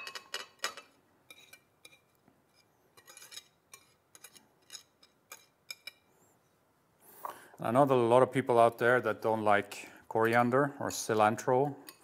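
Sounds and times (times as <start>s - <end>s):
whisk scraping a ceramic plate: 3.0s - 5.6s.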